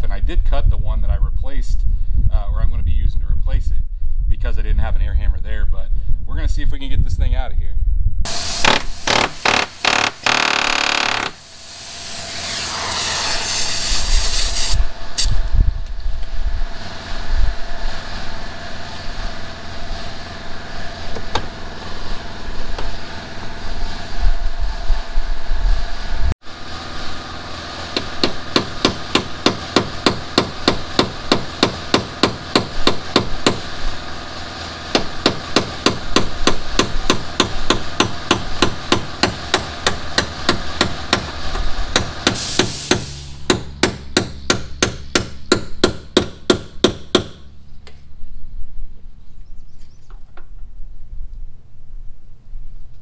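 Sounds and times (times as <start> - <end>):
short hiss: 11.5 - 15.4, 42.4 - 43.4
hammer on metal: 28.0 - 33.7, 34.9 - 41.3, 42.0 - 47.5.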